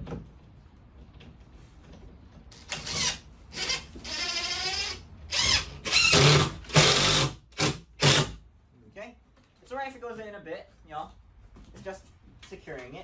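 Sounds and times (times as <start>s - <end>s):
cordless drill driving screws: 2.6s - 8.4s.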